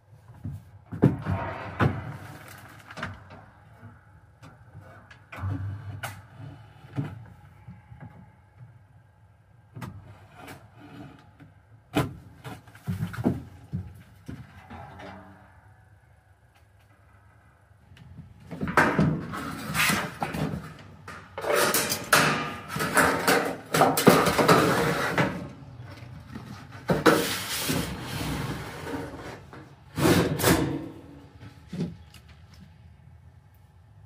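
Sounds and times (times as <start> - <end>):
hard parts scraping and sliding: 19.2 - 31.2.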